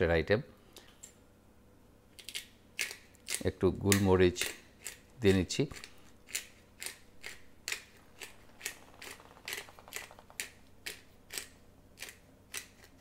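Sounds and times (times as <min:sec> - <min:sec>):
pepper mill grinding: 0:05.7 - 0:13.0.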